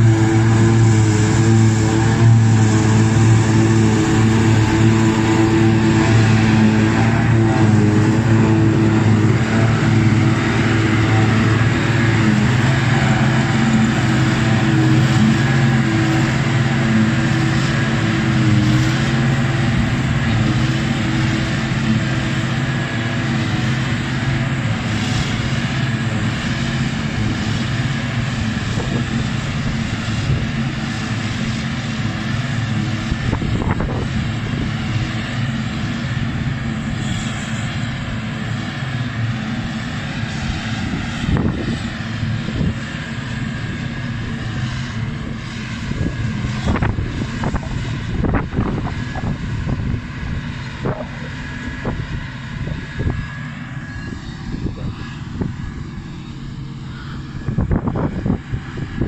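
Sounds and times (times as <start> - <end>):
forage harvester engine drone: 0.0 - 59.0
tractor engine running: 0.0 - 59.0.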